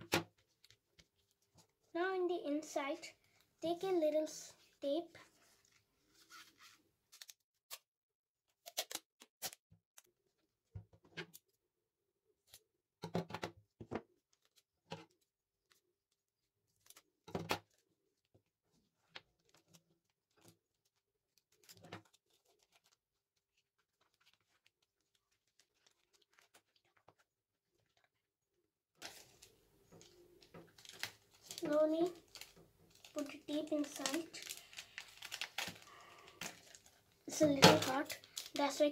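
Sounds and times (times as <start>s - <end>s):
tape and paper crinkling: 0.3s - 1.8s, 5.2s - 7.9s, 8.5s - 9.6s, 14.2s - 28.2s, 29.0s - 38.9s
paper crackles: 5.1s - 7.8s, 17.7s - 28.2s, 29.0s - 38.9s.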